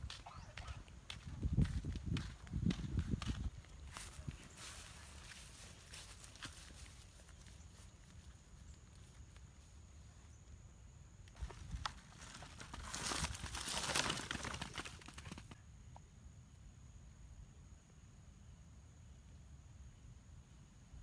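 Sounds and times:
footsteps through grass: 0.0s - 9.7s
fruit tumbling from basket: 11.4s - 15.6s.

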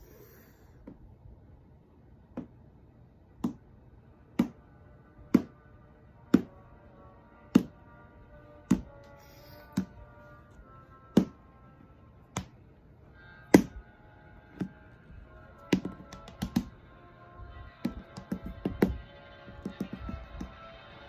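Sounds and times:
quiet steady music: 0.0s - 21.0s
toy knocking on hardwood floor: 8.7s - 9.0s, 15.7s - 16.8s, 17.8s - 20.6s.

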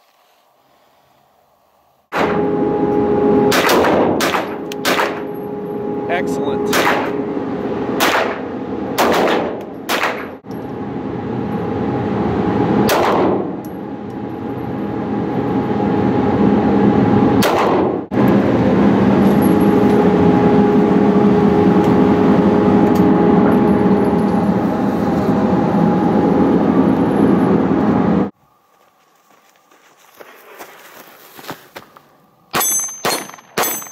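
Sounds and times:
loud steady hum: 2.1s - 28.6s
pistol shots with ringing echo: 3.5s - 5.4s, 6.7s - 7.2s, 8.0s - 10.4s, 12.8s - 13.6s, 17.4s - 18.0s, 32.5s - 33.9s.

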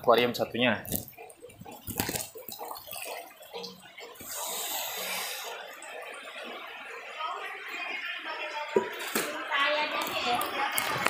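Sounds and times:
water splashing and pouring: 0.7s - 9.4s.

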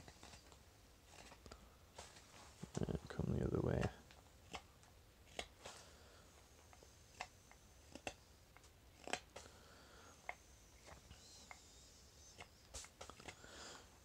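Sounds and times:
knife carving wood ticks: 6.7s - 9.5s, 10.2s - 13.4s.

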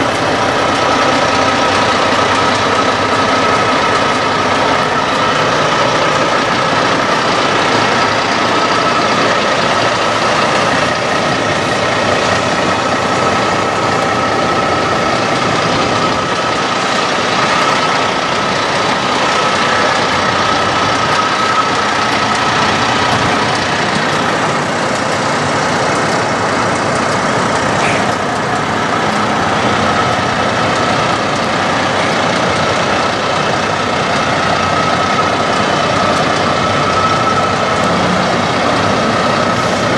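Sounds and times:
diesel engine idling: 0.0s - 39.9s
thin steady whine: 0.0s - 39.9s.

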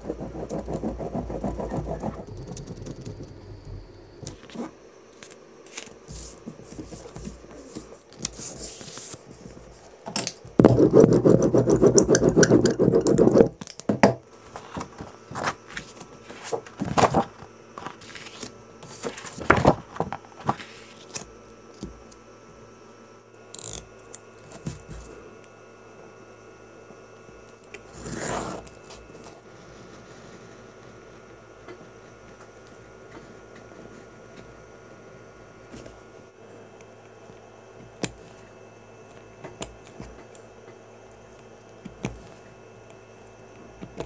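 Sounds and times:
hand tools working leather: 0.0s - 4.7s, 10.6s - 13.6s
loud dense scraping: 0.0s - 4.7s.

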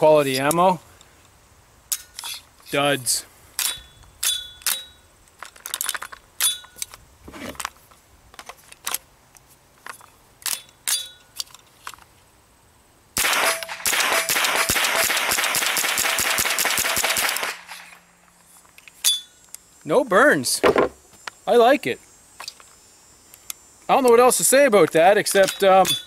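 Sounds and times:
short metallic ring: 3.6s - 5.0s, 6.4s - 6.8s, 10.5s - 11.3s, 19.0s - 19.4s
rifle gunshots: 13.2s - 17.9s.

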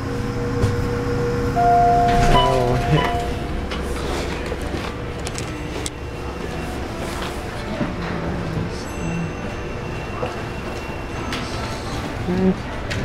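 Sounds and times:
elevator hum and rumble: 0.0s - 13.0s
elevator held tone: 1.3s - 6.8s.

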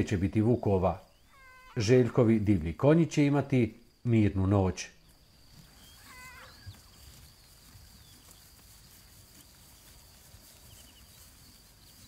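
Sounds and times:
high insect trill: 0.1s - 12.0s
soft bird chirps: 0.5s - 1.8s, 5.0s - 12.0s.

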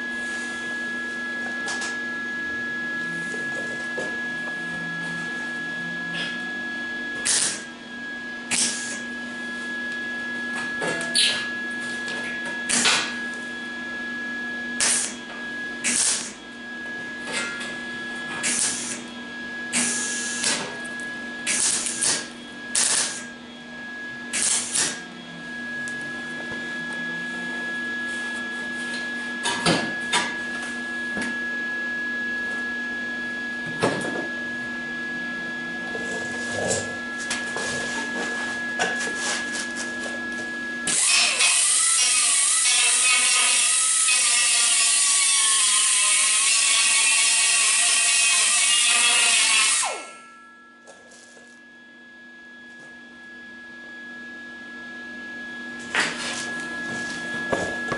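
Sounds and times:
welding arc bursts: 7.2s - 7.7s, 8.5s - 9.0s, 14.8s - 15.2s, 15.8s - 16.4s, 18.4s - 19.0s, 19.8s - 20.6s, 21.5s - 23.3s, 24.3s - 25.0s, 40.9s - 50.1s.

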